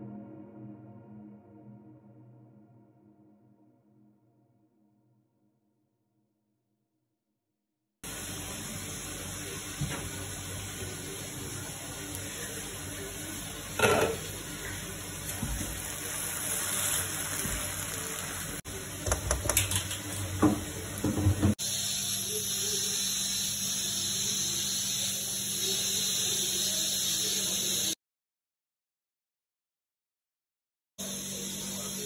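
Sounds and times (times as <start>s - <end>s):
pasta sizzling in a frying pan: 8.0s - 28.0s.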